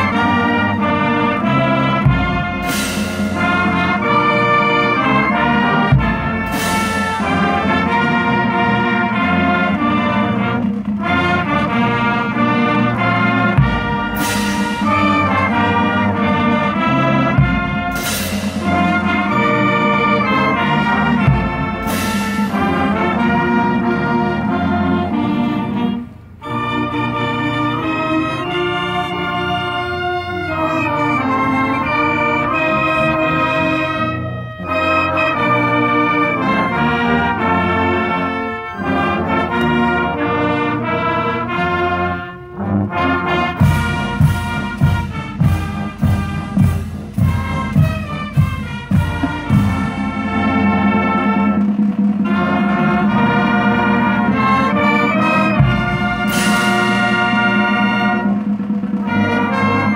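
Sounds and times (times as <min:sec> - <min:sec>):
marching band brass chords: 0:00.0 - 0:59.9
cymbal crash: 0:02.2 - 0:03.9, 0:13.9 - 0:15.4, 0:17.4 - 0:19.3, 0:55.6 - 0:57.6.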